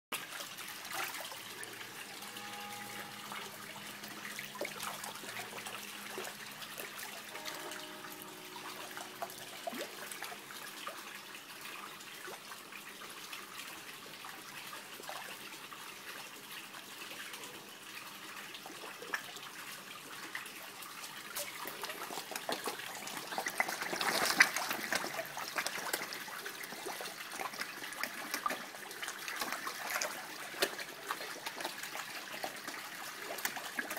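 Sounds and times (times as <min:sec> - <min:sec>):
water trickling: 0:00.2 - 0:33.9
fish splashing and gulping: 0:21.4 - 0:33.9.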